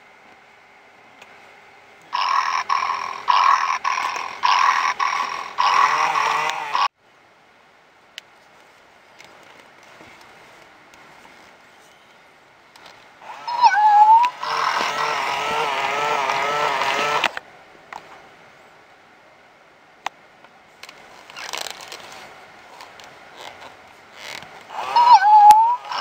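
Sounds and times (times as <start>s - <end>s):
electronic toy cat meowing: 2.2s - 6.2s, 13.4s - 15.4s, 24.8s - 26.0s.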